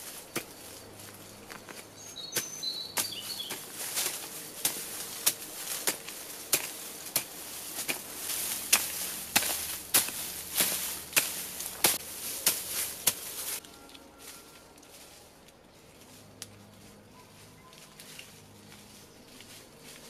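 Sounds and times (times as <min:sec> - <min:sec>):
bird chirps: 0:01.4 - 0:03.8, 0:17.1 - 0:18.1
hoe chopping into soil: 0:01.4 - 0:13.6.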